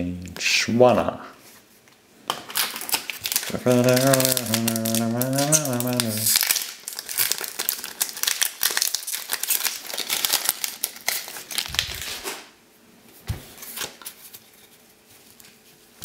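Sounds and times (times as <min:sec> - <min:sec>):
foil wrapper crinkling and tearing: 0:02.4 - 0:12.5.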